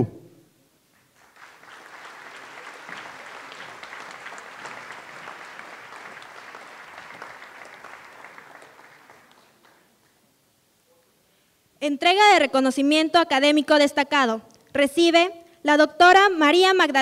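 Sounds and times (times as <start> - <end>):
crowd applauding: 0.9 - 10.2.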